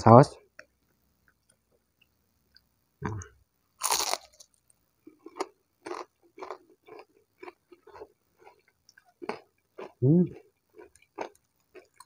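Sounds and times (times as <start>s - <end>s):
crunchy bite: 3.0s - 4.6s
close-up chewing: 3.8s - 12.0s.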